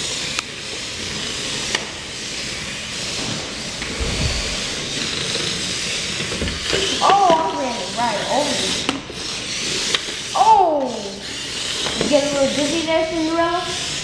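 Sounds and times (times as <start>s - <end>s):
toy cars whirring: 0.0s - 4.1s, 4.7s - 14.0s
low thump: 3.8s - 5.6s.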